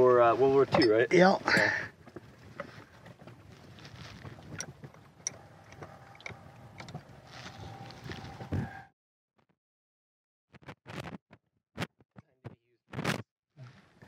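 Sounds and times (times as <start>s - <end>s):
wind: 0.0s - 8.9s
hand tools clicking and tapping: 4.5s - 7.1s.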